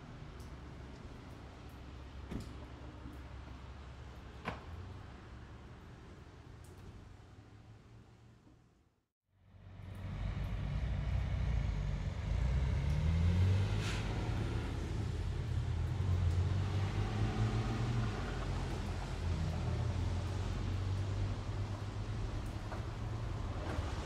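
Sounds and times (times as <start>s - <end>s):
traffic on wet road: 9.5s - 24.0s
vehicle engine rising in pitch: 9.6s - 18.6s
brief sharp hiss: 13.6s - 14.2s.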